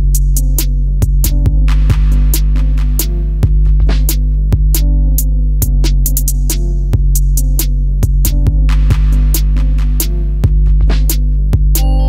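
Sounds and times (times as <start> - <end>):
percussion beat: 5.6 - 12.0
sustained bass notes: 11.6 - 12.0.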